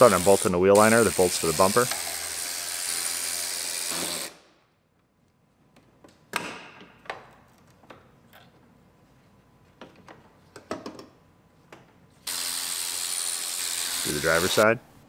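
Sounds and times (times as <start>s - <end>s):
power tool running: 0.0s - 4.4s, 12.2s - 14.6s.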